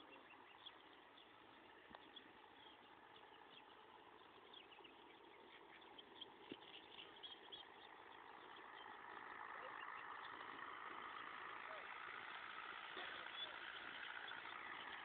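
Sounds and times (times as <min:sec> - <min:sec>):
faint outdoor hiss: 0:00.0 - 0:15.0
faint ticks: 0:01.8 - 0:02.2
faint high chirps: 0:12.8 - 0:15.0.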